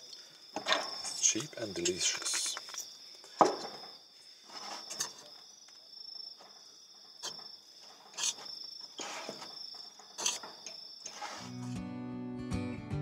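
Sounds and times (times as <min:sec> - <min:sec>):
crickets chirping: 0:00.0 - 0:11.8
fork scraping a bowl: 0:08.1 - 0:09.6, 0:10.2 - 0:11.7.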